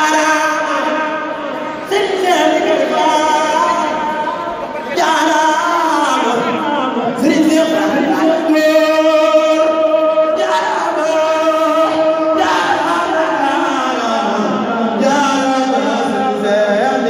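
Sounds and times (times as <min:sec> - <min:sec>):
voices chanting a religious song: 0:00.0 - 0:17.0.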